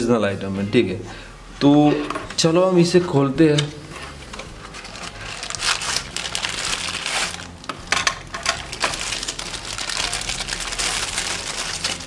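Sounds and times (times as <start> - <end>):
plastic bag crinkling: 4.6 - 12.0.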